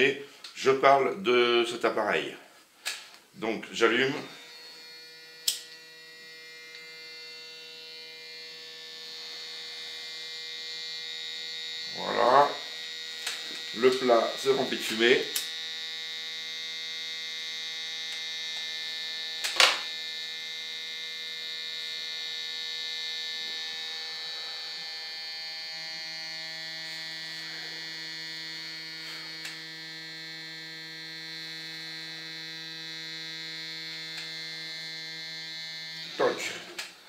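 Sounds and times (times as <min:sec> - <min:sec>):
air pump humming: 0:02.5 - 0:37.0.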